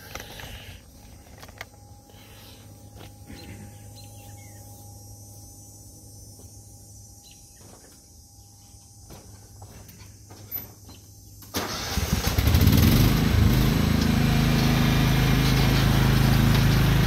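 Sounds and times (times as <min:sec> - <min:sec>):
low hum: 0:00.0 - 0:11.5
bird chirp: 0:02.0 - 0:09.0.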